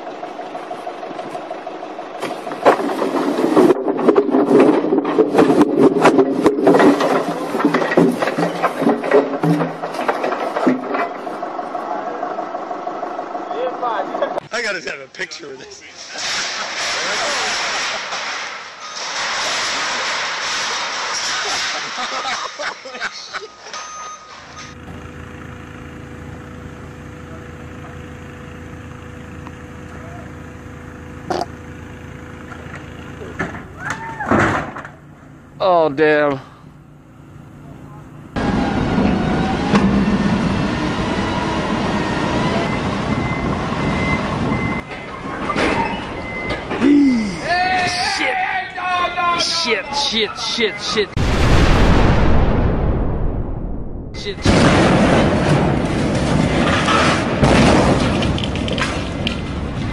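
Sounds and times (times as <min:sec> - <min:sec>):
forklift engine running: 0:00.0 - 0:14.8, 0:20.2 - 0:47.7, 0:53.9 - 0:59.9
low mechanical hum: 0:00.0 - 0:59.9
logs collapsing and clattering: 0:02.2 - 0:11.5, 0:15.9 - 0:22.6, 0:54.4 - 0:59.9.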